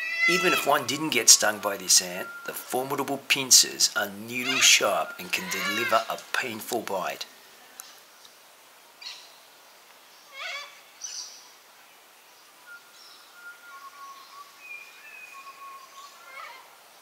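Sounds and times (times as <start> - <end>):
drawn-out whistled bird notes: 0.0 - 2.8, 12.4 - 16.6
faint steady hiss: 0.0 - 17.0
bird chirps and calls: 3.7 - 6.5.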